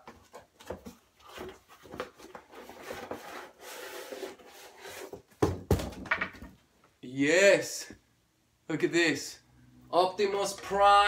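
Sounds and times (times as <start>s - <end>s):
cardboard box scraping and rustling: 1.2s - 5.2s.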